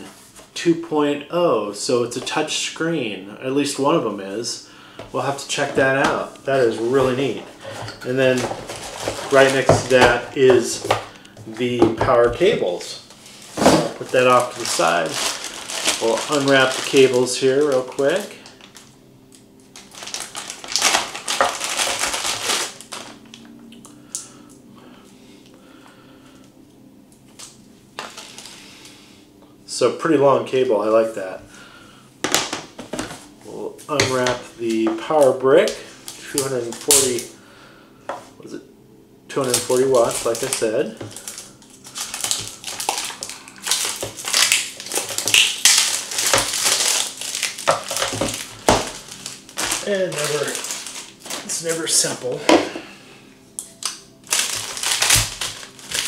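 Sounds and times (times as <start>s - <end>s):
plastic bag crinkling: 5.5s - 18.9s, 19.6s - 24.3s, 28.0s - 28.6s, 33.9s - 37.4s, 39.3s - 52.7s, 53.7s - 56.0s
cable handling: 13.4s - 18.7s, 19.8s - 23.4s, 39.4s - 51.9s, 53.6s - 56.0s.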